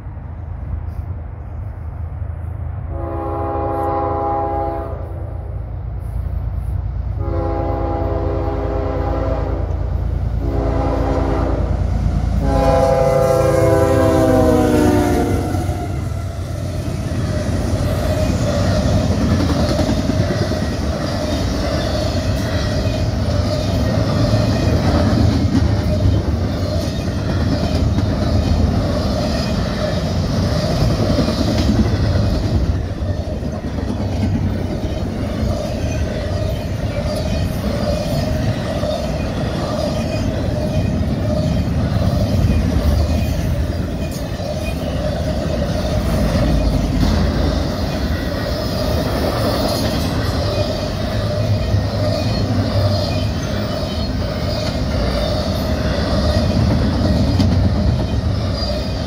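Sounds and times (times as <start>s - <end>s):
locomotive horn blasts: 2.9s - 5.2s, 7.2s - 9.8s, 10.4s - 11.8s, 12.4s - 16.4s
freight cars rumbling and clattering: 15.8s - 59.0s.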